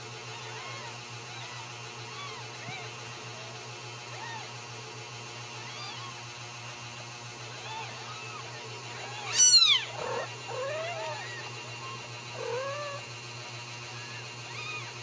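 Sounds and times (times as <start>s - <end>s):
kittens mewing: 0.2s - 4.8s, 5.4s - 6.5s, 7.4s - 15.0s
kitten shrill cry: 5.6s - 6.2s, 7.6s - 11.5s, 14.0s - 15.0s.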